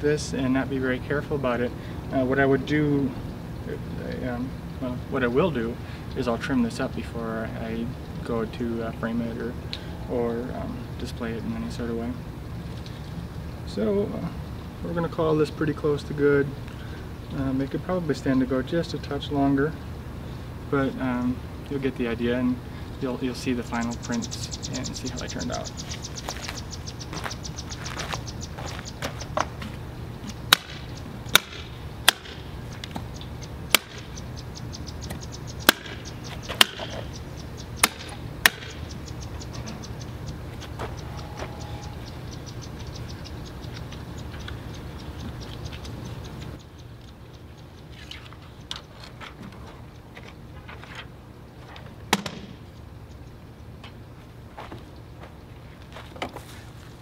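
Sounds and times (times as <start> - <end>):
low hum: 0.0 - 55.6
fast steady ticking: 23.0 - 49.0.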